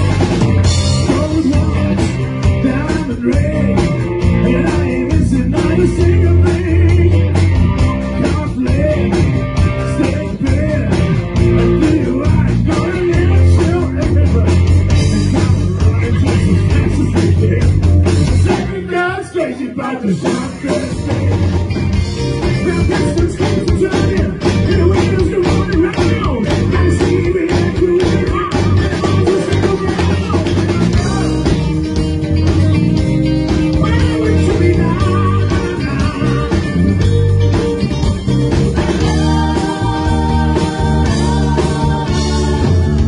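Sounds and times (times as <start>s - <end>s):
bass guitar: 0.0s - 43.0s
drums: 0.0s - 43.0s
electric guitars: 0.0s - 43.0s
person singing: 1.0s - 7.4s, 22.4s - 31.7s, 33.7s - 36.8s.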